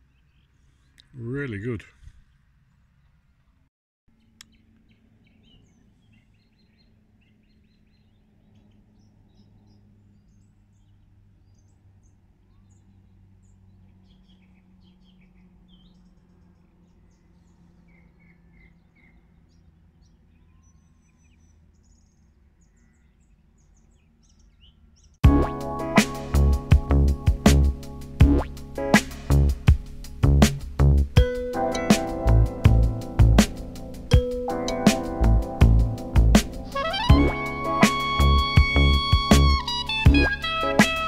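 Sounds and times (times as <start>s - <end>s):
low steady hum: 25.2s - 40.5s
loud music: 25.2s - 41.0s.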